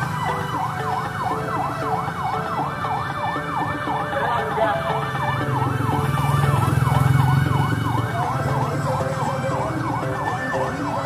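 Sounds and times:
car engine passing: 0:00.0 - 0:11.0
siren yelping: 0:00.0 - 0:11.0.

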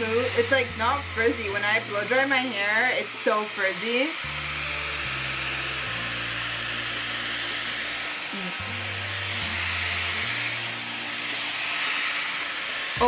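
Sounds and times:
hair styler blowing hot air: 0:00.0 - 0:13.0
background music with bass: 0:04.2 - 0:07.4.

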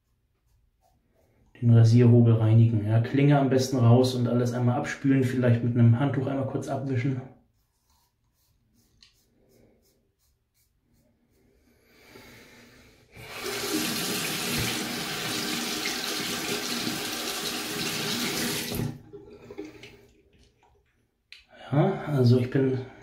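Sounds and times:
tap running into sink: 0:13.4 - 0:19.9.

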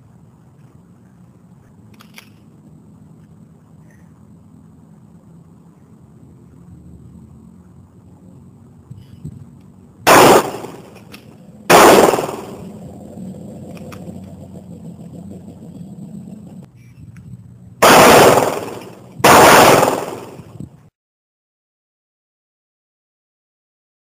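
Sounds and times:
pistol shots echoing: 0:10.1 - 0:11.0, 0:11.7 - 0:12.8, 0:17.8 - 0:20.5.

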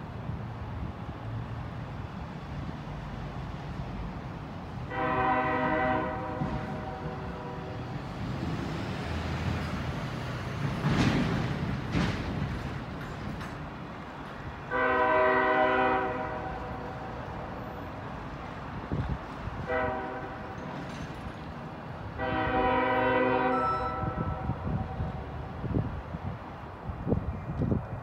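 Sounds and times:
locomotive air horn blasts: 0:04.9 - 0:08.0, 0:14.7 - 0:17.1, 0:19.6 - 0:20.6, 0:22.2 - 0:25.1.

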